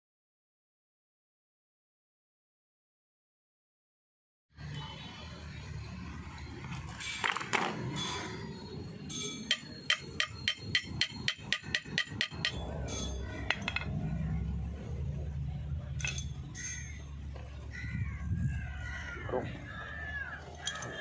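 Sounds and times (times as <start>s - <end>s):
spanner tapping on metal: 9.1s - 14.0s.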